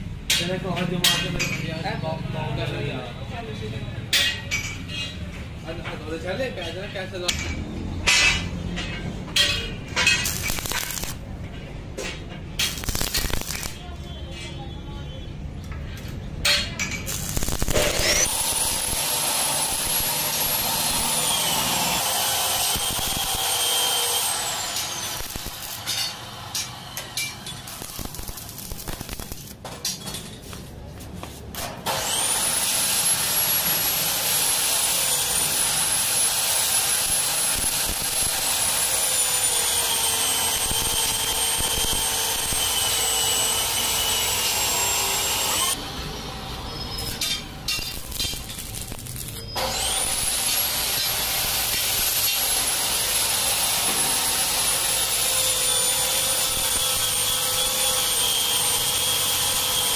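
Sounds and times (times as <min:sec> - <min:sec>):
welding arc crackling and hissing: 0:09.4 - 0:11.3, 0:12.6 - 0:14.0, 0:16.8 - 0:29.6, 0:31.5 - 0:59.9.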